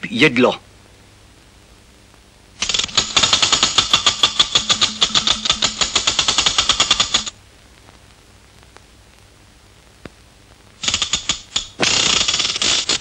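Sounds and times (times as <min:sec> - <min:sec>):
barrel organ crank rattle: 0:02.6 - 0:07.3, 0:10.8 - 0:13.0.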